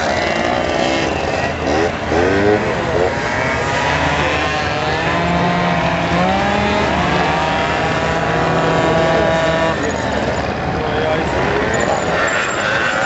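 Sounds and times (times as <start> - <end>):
scooter engine revving high: 0.0 - 13.0.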